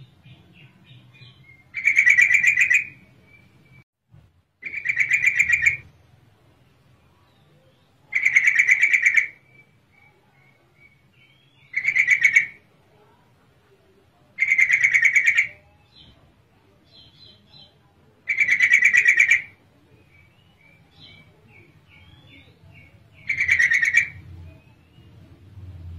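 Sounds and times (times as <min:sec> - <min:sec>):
bird pulsing calls: 0:23.2 - 0:24.2.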